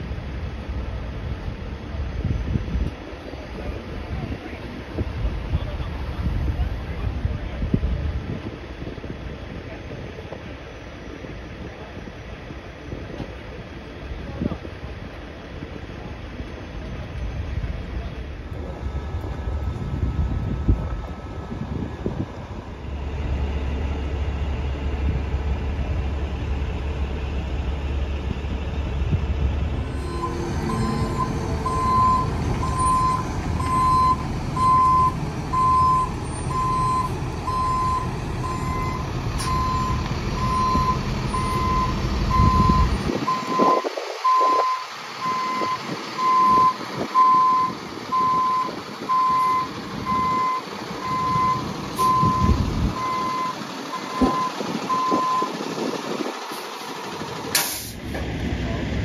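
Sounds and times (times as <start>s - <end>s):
diesel truck engine rumbling: 0.0s - 59.0s
reversing alarm beeping: 29.7s - 55.6s.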